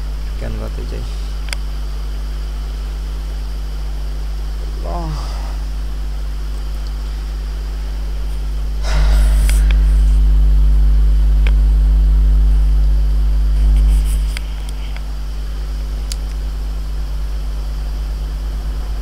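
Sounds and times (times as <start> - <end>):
low electrical hum: 0.0 - 19.0
low rumble: 1.8 - 19.0
sharp clicks: 16.0 - 16.4.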